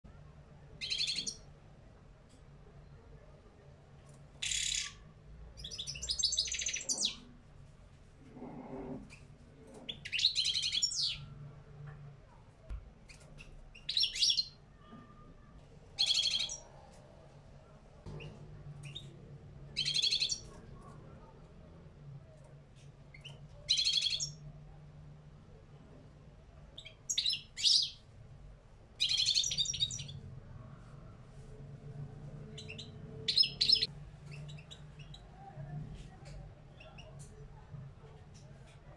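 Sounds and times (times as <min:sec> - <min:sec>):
goldfinch twittering song: 0:32.6 - 0:35.2.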